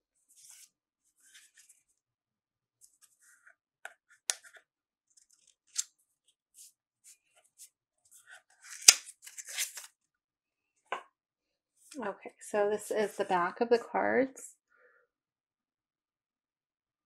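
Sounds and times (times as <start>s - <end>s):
cards clicking and rustling: 8.6s - 9.9s.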